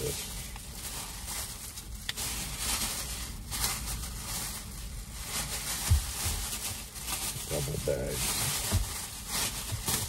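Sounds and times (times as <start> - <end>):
plastic bag rustling: 0.0 - 10.0.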